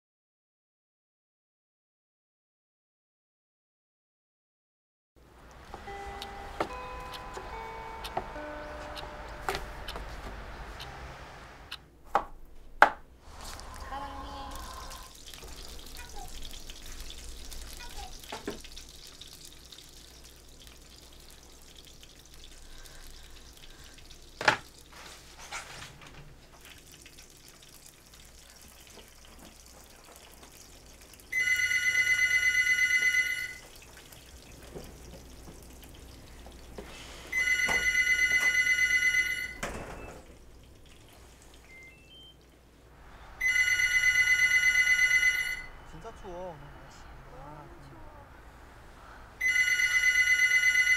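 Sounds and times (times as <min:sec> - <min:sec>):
telephone ringing: 0:05.8 - 0:10.0, 0:31.3 - 0:33.7, 0:37.3 - 0:40.2, 0:43.4 - 0:45.8, 0:49.4 - 0:50.9
water running at a sink: 0:13.2 - 0:42.6.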